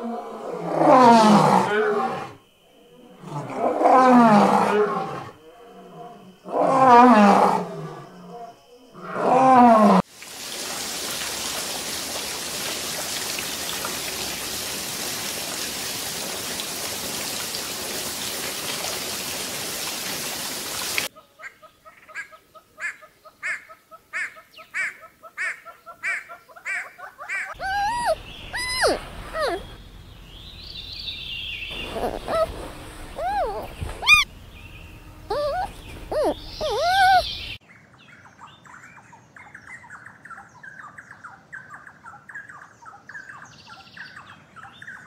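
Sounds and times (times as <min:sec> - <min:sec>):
steady hiss: 0:10.0 - 0:21.1, 0:28.2 - 0:36.6
short repeated animal calls: 0:24.2 - 0:29.8, 0:31.7 - 0:34.3, 0:35.2 - 0:37.5
animal calls with falling pitch: 0:27.3 - 0:29.8, 0:31.7 - 0:34.3, 0:34.9 - 0:37.6.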